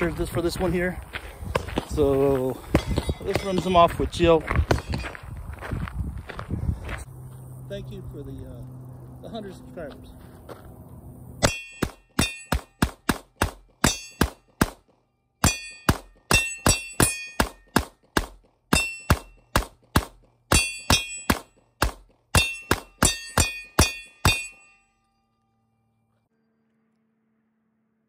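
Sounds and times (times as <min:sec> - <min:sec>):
handgun rapid fire: 0:11.8 - 0:24.5.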